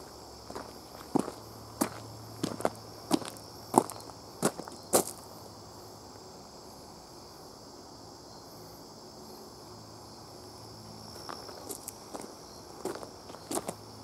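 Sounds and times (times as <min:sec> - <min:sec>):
insects trilling: 0:00.0 - 0:14.0
footsteps crunching on leaves: 0:00.4 - 0:05.2.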